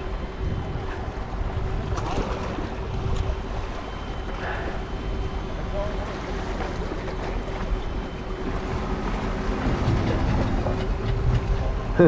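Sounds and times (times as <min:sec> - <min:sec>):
wind across microphone: 0:00.0 - 0:03.5
faint steady hum: 0:00.0 - 0:12.0.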